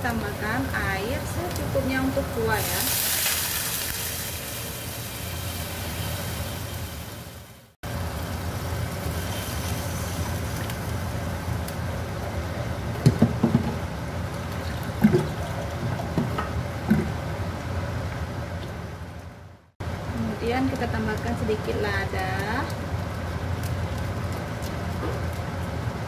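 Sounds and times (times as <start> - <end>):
sauce bubbling and hissing: 1.2 - 12.9.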